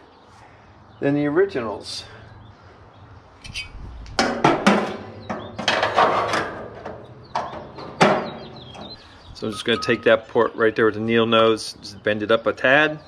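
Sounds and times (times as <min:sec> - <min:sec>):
metal burner clanking in firebox: 0:04.2 - 0:09.0.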